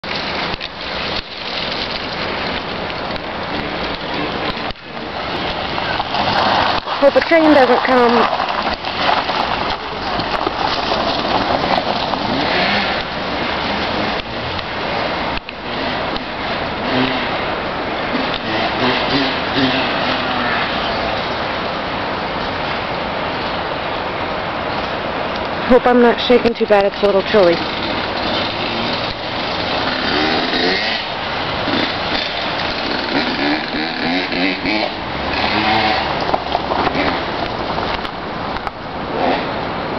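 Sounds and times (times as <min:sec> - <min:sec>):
vehicle driving on dirt trail: 0:00.0 - 0:39.9.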